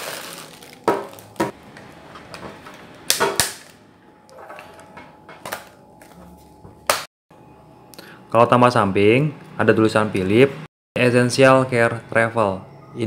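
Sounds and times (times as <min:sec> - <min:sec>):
plastic bag crinkling: 0:00.0 - 0:01.4.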